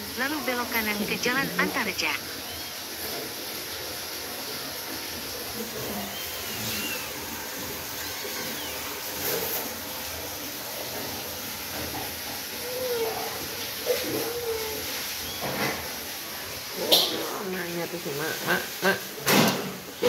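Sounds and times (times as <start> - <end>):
kitten mewing: 12.6 - 15.1.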